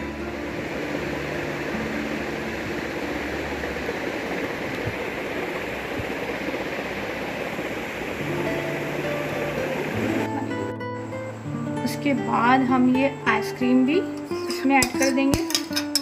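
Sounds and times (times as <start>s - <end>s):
steady rushing noise: 0.0s - 11.2s.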